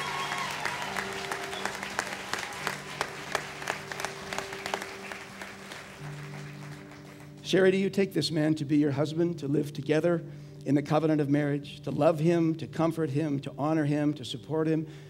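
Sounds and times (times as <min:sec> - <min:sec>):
audience applauding: 0:00.0 - 0:07.4
soft background music: 0:00.0 - 0:15.0.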